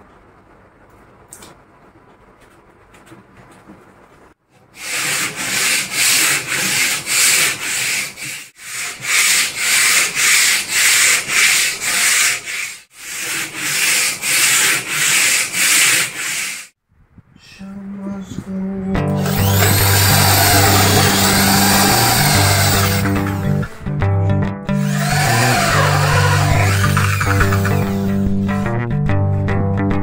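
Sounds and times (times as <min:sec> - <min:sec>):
hand sanding wood: 0:04.8 - 0:16.7, 0:19.3 - 0:23.5, 0:24.8 - 0:28.4.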